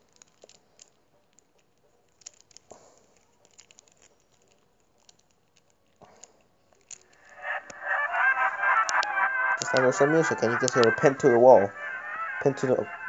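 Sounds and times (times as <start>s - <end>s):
loud music: 7.3s - 13.0s.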